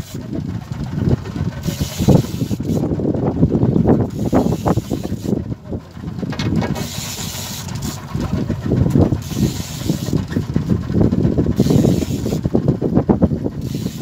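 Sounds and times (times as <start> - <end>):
boat engine: 0.0 - 14.0
wind buffeting microphone: 0.0 - 14.0
hiss: 11.6 - 12.4.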